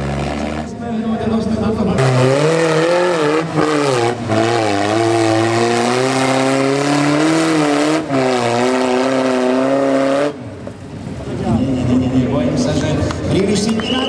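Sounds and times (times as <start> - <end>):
buggy engine revving hard: 0.0 - 0.8, 2.0 - 10.5.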